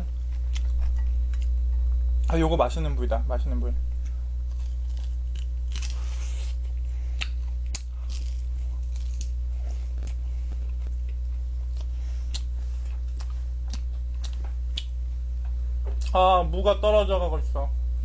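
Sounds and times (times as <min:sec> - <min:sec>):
low electrical hum: 0:00.0 - 0:18.0
person chewing chicken: 0:04.5 - 0:15.0
wet smacks and clicks: 0:11.8 - 0:12.5, 0:13.1 - 0:15.0.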